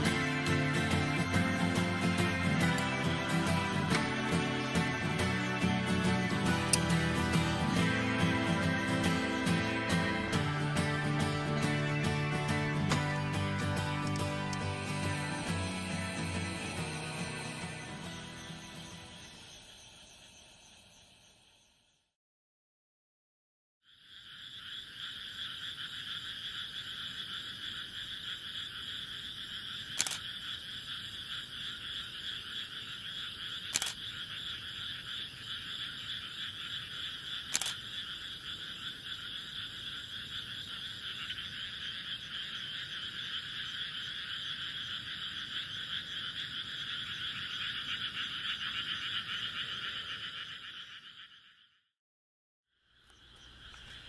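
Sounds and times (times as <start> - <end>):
chorus of frogs calling: 0.0 - 20.6, 23.9 - 51.8, 52.9 - 54.0
camera shutter clicks: 33.7 - 34.0, 37.5 - 37.8.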